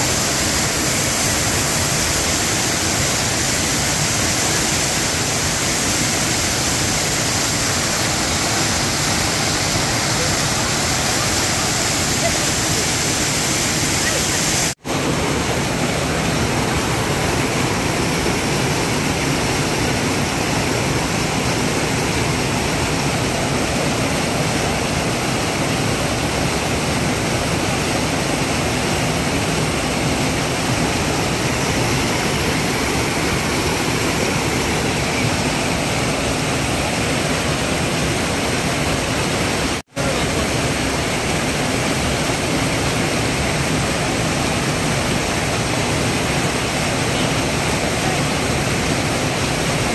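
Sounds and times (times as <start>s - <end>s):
water rushing over rocks: 0.0s - 49.9s.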